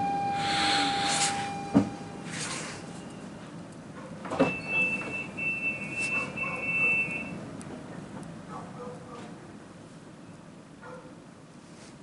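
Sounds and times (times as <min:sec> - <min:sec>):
high warning tone: 0:00.0 - 0:03.4, 0:04.4 - 0:07.4
air hissing: 0:00.3 - 0:02.9.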